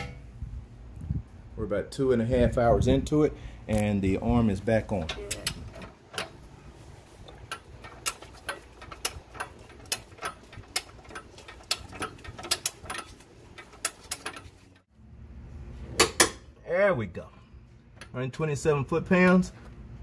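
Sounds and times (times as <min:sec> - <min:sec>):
ratcheting torque wrench clicking: 0:07.3 - 0:14.8.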